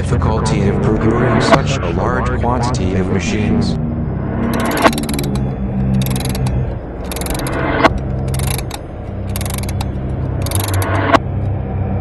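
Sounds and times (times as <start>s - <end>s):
steady low rumble: 0.0s - 12.0s
rapid mechanical ticking: 4.5s - 11.3s.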